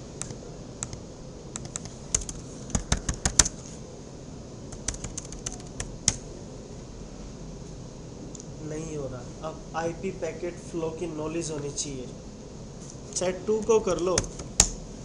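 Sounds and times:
computer keyboard typing: 0.2 - 3.6, 4.7 - 6.2, 14.0 - 14.8.

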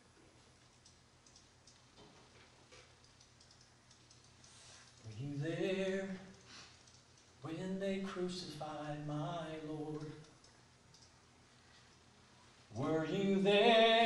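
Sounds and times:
soft clicks: 0.6 - 2.0, 2.7 - 5.2, 6.2 - 7.4, 9.9 - 12.0.

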